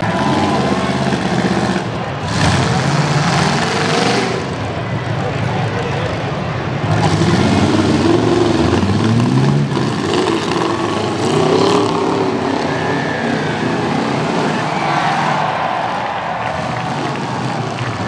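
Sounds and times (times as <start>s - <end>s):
pickup truck engines revving: 0.0s - 18.0s.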